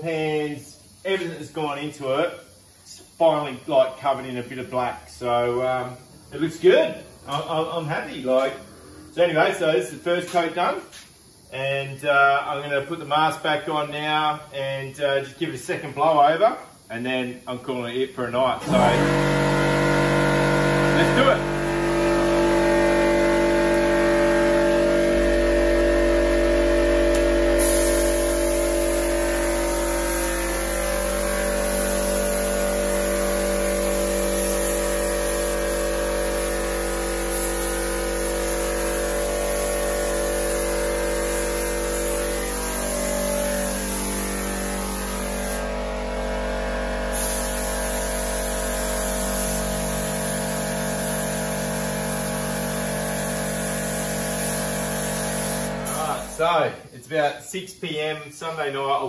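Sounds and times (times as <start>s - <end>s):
spray gun hissing: 0.2s - 4.2s, 18.6s - 45.8s, 47.1s - 56.6s
motor hum: 18.6s - 27.6s, 40.8s - 47.1s.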